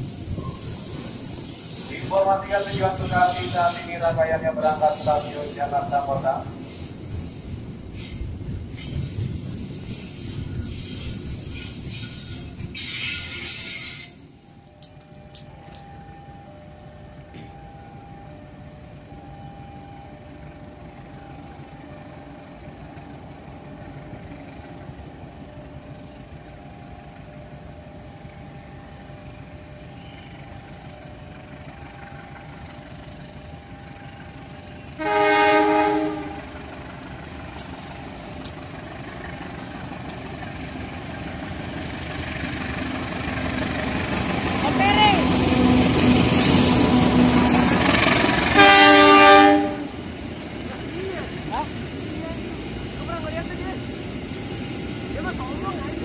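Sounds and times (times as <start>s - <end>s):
locomotive rumble: 0.0s - 56.0s
train horn blast: 34.9s - 36.6s, 45.6s - 50.0s.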